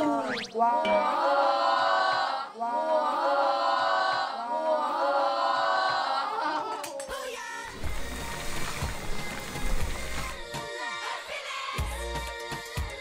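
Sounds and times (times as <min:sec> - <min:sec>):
wordless choir singing: 0:00.0 - 0:13.0.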